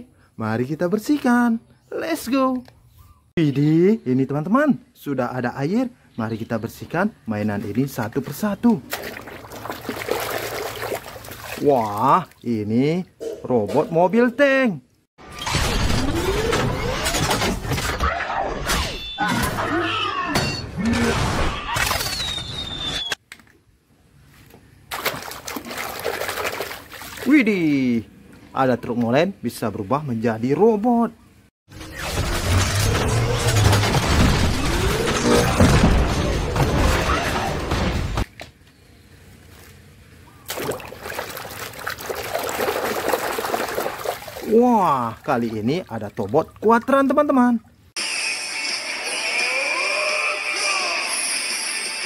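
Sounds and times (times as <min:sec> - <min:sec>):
water splashing in plastic basin: 0:08.8 - 0:12.6, 0:24.9 - 0:27.3, 0:40.5 - 0:46.8
crashing impacts: 0:31.8 - 0:38.3.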